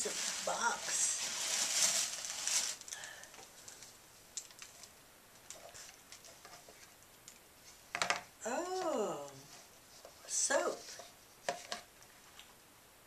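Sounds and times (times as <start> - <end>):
paper bag rustling: 0.0 - 3.1.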